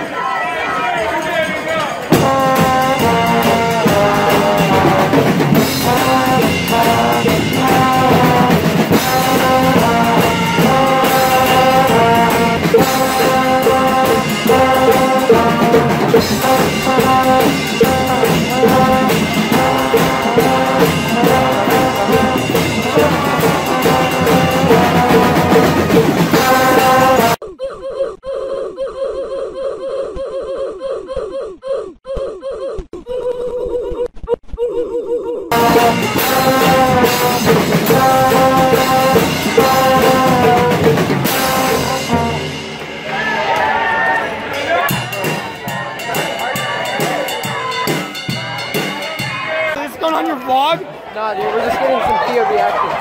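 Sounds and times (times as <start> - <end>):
drums keeping a steady beat: 0.6 - 27.4, 35.5 - 50.8
brass band playing: 2.0 - 27.4, 35.5 - 50.7
loud trombones: 2.0 - 27.4, 35.5 - 49.7.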